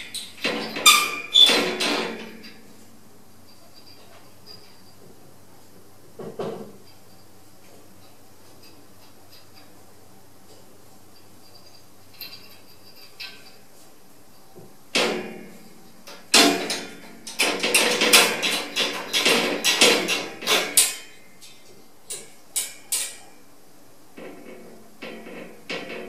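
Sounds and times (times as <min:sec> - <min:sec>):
cage door latch clanking: 0:00.0 - 0:02.6, 0:15.0 - 0:21.1.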